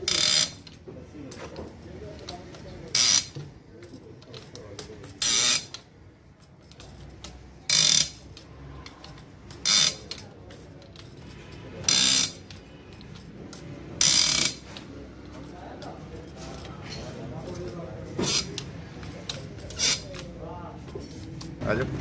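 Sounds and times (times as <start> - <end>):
workshop noise: 0.0 - 22.0
mechanical clicking bursts: 2.2 - 3.4, 5.0 - 5.8, 6.6 - 10.2, 10.9 - 14.9.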